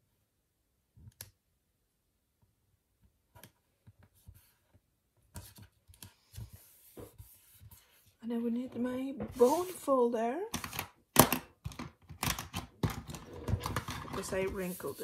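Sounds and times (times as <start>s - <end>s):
paper rustling: 13.5s - 15.0s.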